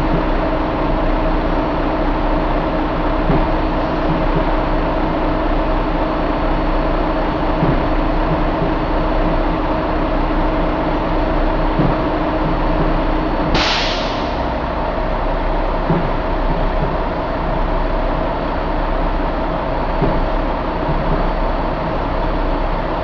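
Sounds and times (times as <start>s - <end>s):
diesel engine idling: 0.0s - 23.0s
released air hiss: 13.6s - 14.5s.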